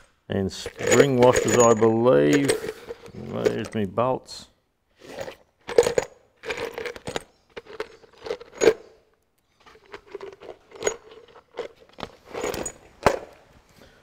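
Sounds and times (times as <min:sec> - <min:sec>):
metal bolts clinking: 0:00.0 - 0:03.9, 0:05.6 - 0:09.0, 0:09.6 - 0:13.4.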